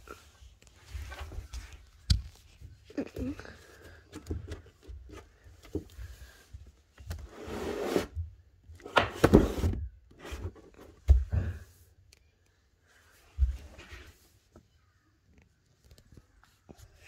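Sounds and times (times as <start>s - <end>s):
objects knocking and thumping: 8.8s - 11.7s.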